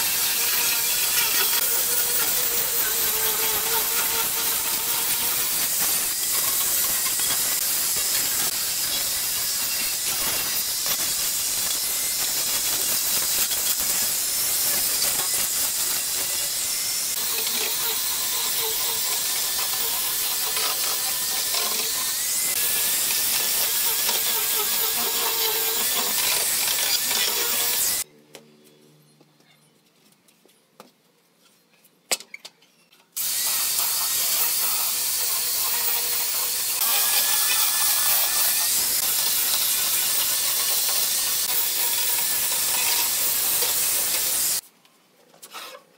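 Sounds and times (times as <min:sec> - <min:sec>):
angle grinder sanding wood: 0:00.0 - 0:28.0, 0:33.2 - 0:44.6.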